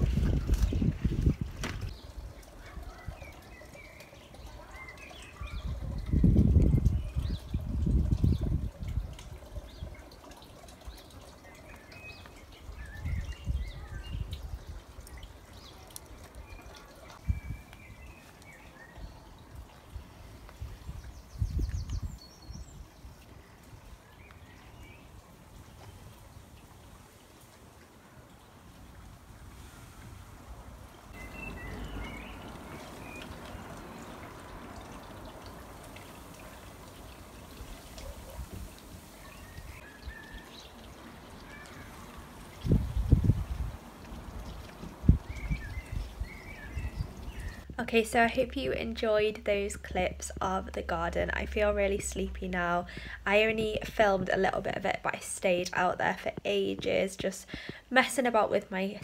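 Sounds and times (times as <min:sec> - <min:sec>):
wind rumbling on microphone: 0:00.0 - 0:03.4, 0:05.2 - 0:10.1, 0:12.3 - 0:27.2, 0:28.2 - 0:49.0
small birds chirping: 0:00.0 - 0:27.2, 0:30.8 - 0:54.8.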